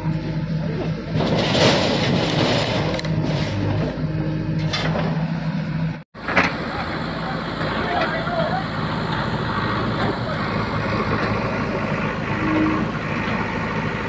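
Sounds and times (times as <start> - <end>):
diesel engine running: 0.0 - 14.0.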